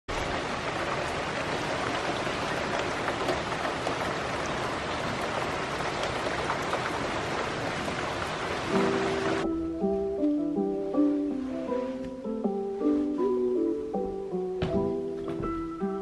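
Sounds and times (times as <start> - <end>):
raindrop ticks: 0.1 - 9.0
steady rain hiss: 0.1 - 16.0.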